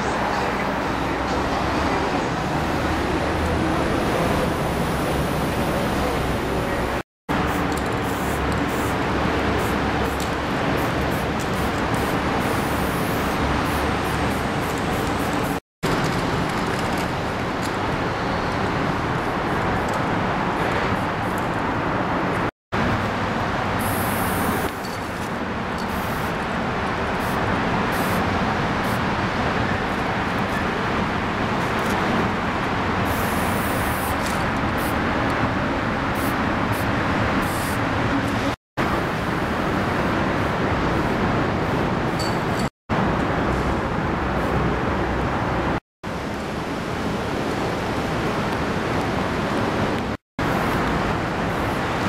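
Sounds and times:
road traffic hum: 0.0 - 52.0
spray-paint can hissing: 7.4 - 10.2, 10.8 - 15.5, 23.8 - 24.7, 25.9 - 26.3, 27.2 - 28.2, 33.0 - 35.0, 36.2 - 37.8.

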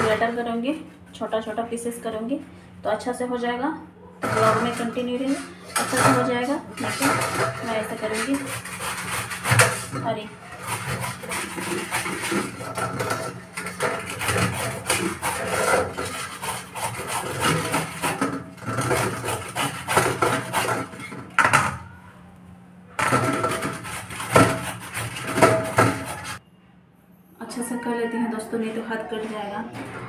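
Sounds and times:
gourd grating on metal grater: 4.2 - 21.8, 23.0 - 26.4.

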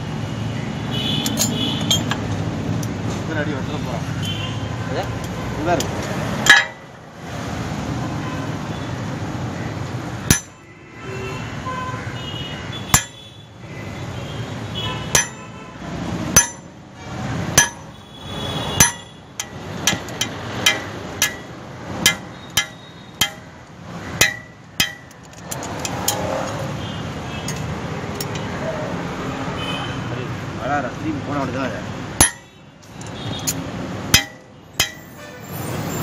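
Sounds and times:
hammer ringing on anvil: 10.3 - 10.6, 13.0 - 13.2, 15.1 - 15.5, 16.4 - 16.7, 17.6 - 17.9, 18.8 - 20.1, 20.7 - 23.5, 24.2 - 25.1, 32.2 - 32.5, 34.2 - 35.1.

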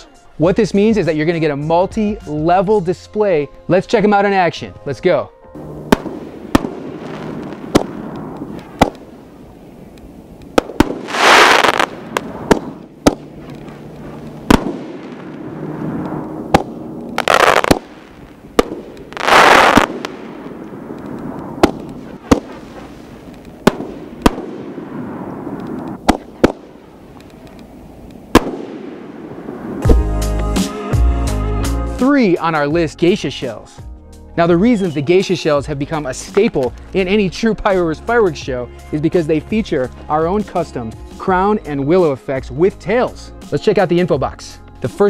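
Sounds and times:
hissing rushes: 5.6 - 30.0
firework shells banging: 5.6 - 30.1.

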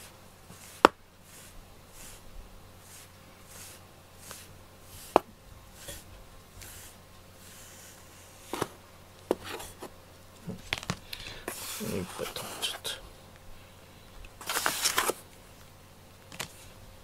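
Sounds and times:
brush rubbing through fur: 0.0 - 8.6, 11.5 - 13.0.

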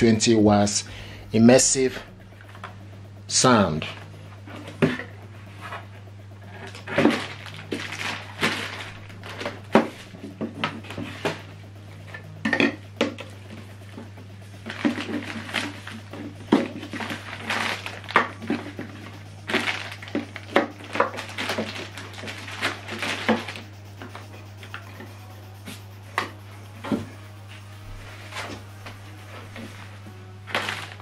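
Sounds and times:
plastic bags crinkling: 6.6 - 9.7, 14.6 - 23.7, 30.5 - 31.0.

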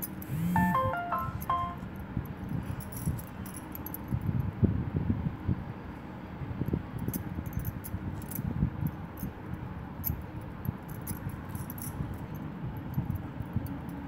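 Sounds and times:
bangles clinking: 0.0 - 4.2, 10.0 - 14.0.

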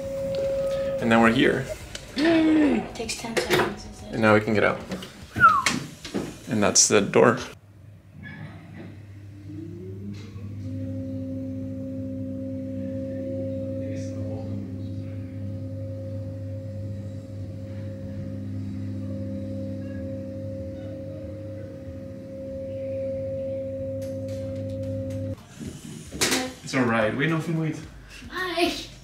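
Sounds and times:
lift motor humming and whining: 9.0 - 25.4.

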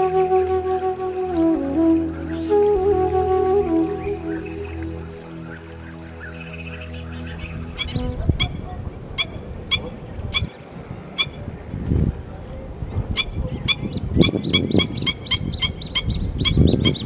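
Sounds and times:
flamingos honking: 0.0 - 11.4.

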